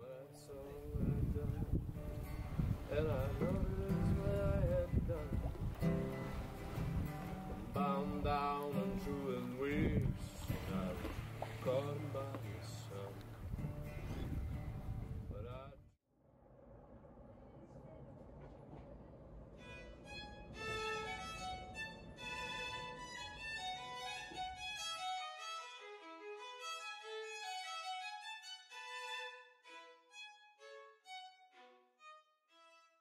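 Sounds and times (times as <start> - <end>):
violin melody: 2.1 - 13.2, 19.6 - 33.0.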